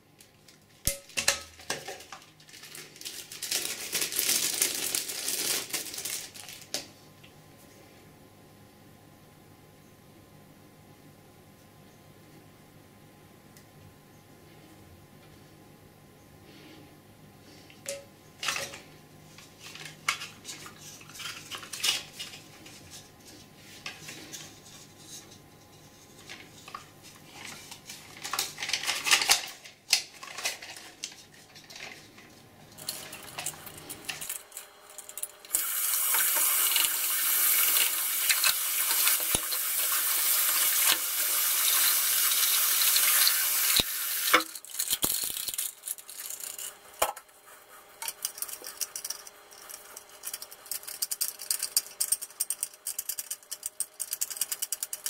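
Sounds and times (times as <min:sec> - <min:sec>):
tap running water: 0:35.5 - 0:44.5
plastic parts clicking and knocking: 0:44.3 - 0:47.3, 0:48.0 - 0:55.0.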